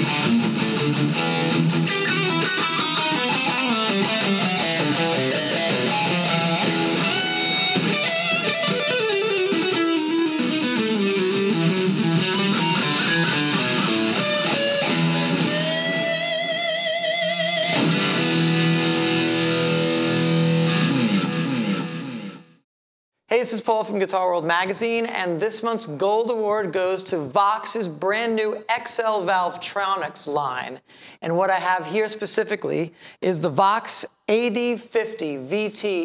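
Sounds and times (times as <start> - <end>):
distorted electric guitar: 0.0 - 22.6.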